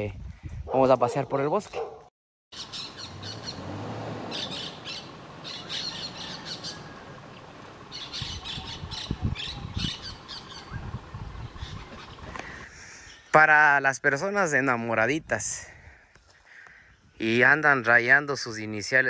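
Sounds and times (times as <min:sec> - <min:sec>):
parakeets squawking: 0:02.6 - 0:12.6.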